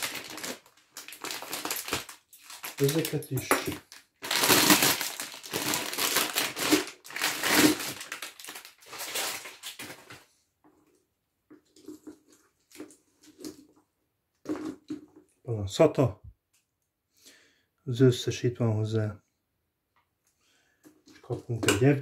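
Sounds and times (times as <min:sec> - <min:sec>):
plastic packaging crinkling: 0:00.0 - 0:10.4.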